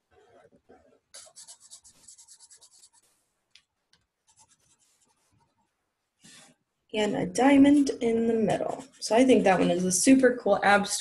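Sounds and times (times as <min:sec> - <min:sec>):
marker scratching on paper: 0:01.2 - 0:03.3, 0:04.2 - 0:05.6, 0:07.7 - 0:09.8.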